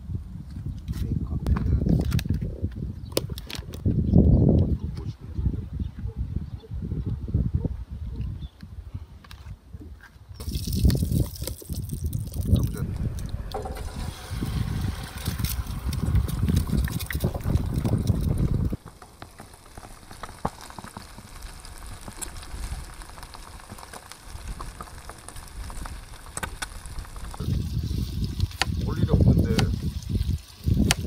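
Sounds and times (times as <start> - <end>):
wind rumble on microphone: 0.0 - 18.9, 19.8 - 31.0
fat crackling and popping: 0.8 - 4.7, 10.4 - 31.0
bacon and eggs sizzling in a pan: 13.4 - 31.0.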